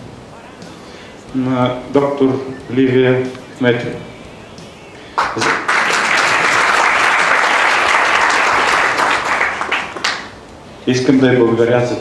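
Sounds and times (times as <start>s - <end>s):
audience applauding: 4.6s - 10.4s.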